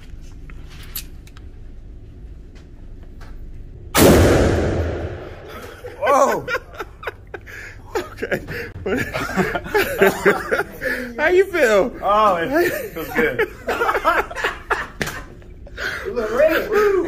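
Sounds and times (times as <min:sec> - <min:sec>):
revolver gunshot echoing: 0:04.0 - 0:05.8.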